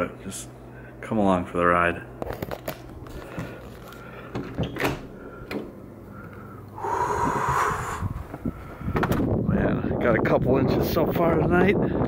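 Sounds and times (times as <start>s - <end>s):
door opening clicks: 4.3s - 5.7s
wind rushing on microphone: 6.8s - 12.0s.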